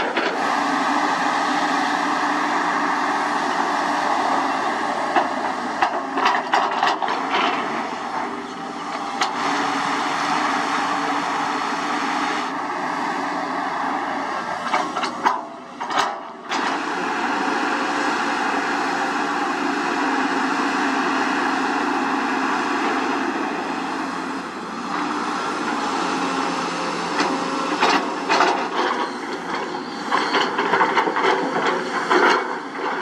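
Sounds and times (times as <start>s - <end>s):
excavator diesel engine running: 0.0s - 33.0s.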